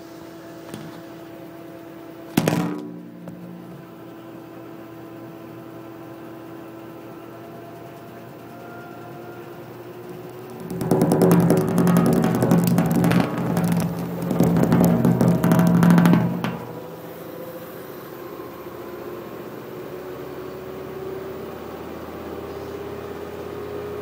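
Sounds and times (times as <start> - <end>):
washing machine rumbling: 10.3 - 17.2
washing machine knocking: 10.5 - 17.0.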